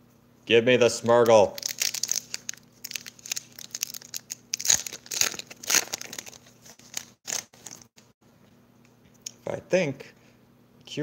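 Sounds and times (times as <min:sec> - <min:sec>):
foil pack tearing and crinkling: 0:01.6 - 0:07.8.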